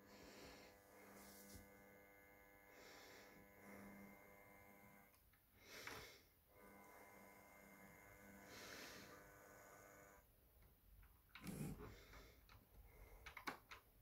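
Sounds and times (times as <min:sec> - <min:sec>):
soft breaths: 0:00.0 - 0:01.9, 0:02.6 - 0:04.2, 0:05.0 - 0:06.8, 0:07.7 - 0:09.4, 0:11.4 - 0:13.7
faint model train motor hum: 0:00.0 - 0:05.2, 0:06.6 - 0:10.2.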